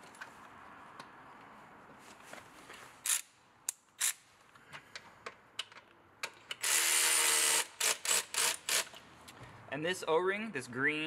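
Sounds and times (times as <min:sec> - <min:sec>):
light clicks of bolt and tool: 0:04.5 - 0:06.6.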